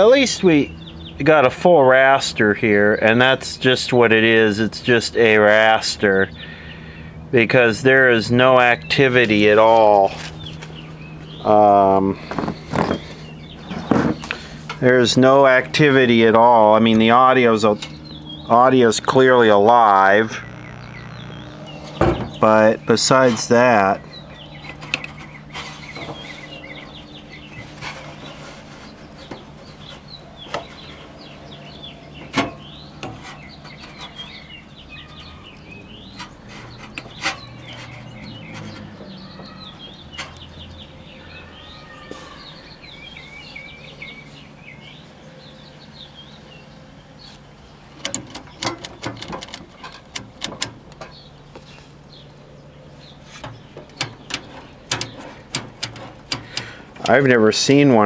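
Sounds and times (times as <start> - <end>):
small birds chirping: 0.0 - 58.0
steady low hum: 0.0 - 58.0
rotary selector clicking: 48.0 - 51.2, 53.4 - 57.2.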